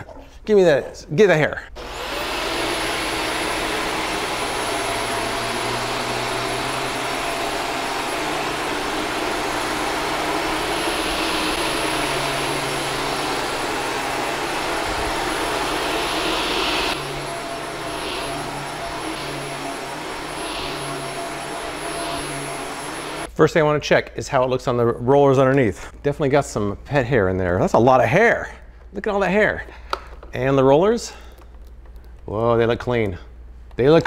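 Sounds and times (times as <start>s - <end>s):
upright vacuum running: 1.8s - 23.3s.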